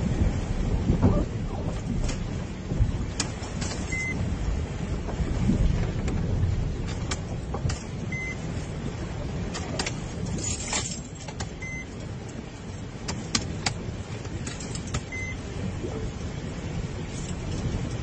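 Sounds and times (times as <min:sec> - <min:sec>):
vehicle cabin rumble: 0:00.0 - 0:18.0
sharp clicks and knocks: 0:05.0 - 0:08.0, 0:13.0 - 0:15.2.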